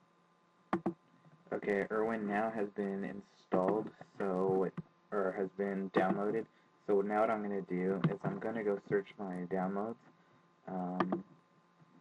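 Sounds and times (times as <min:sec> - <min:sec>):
man murmuring: 0:01.5 - 0:09.8, 0:10.7 - 0:11.2
computer mouse click: 0:11.0 - 0:11.2.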